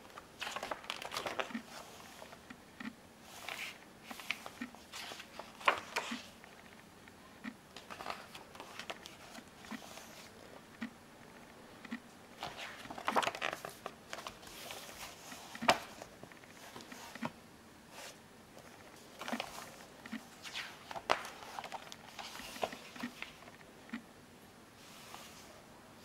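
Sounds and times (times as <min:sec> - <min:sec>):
paper pages rustling: 0:00.0 - 0:02.4, 0:03.2 - 0:06.8, 0:07.8 - 0:10.4, 0:12.4 - 0:17.3, 0:17.9 - 0:23.6.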